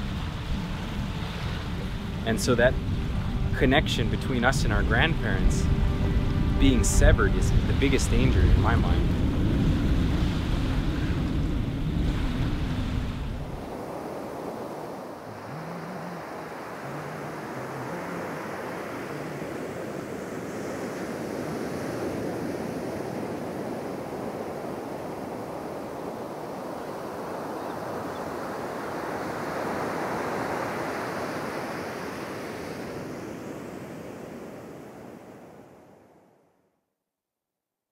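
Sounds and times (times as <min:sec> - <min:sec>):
wind rushing: 0:00.0 - 0:15.2
waves: 0:00.0 - 0:36.2.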